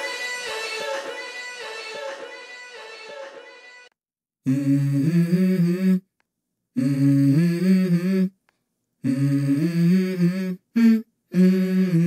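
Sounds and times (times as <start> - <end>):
person humming a melody: 4.4 - 6.1, 6.8 - 8.4, 9.0 - 12.0.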